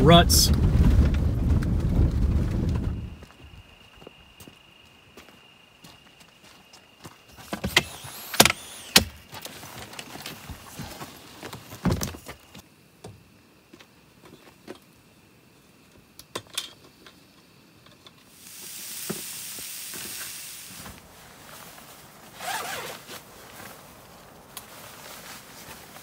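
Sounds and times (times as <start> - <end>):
steady hiss: 5.2 - 26.0
rustling: 18.8 - 26.0.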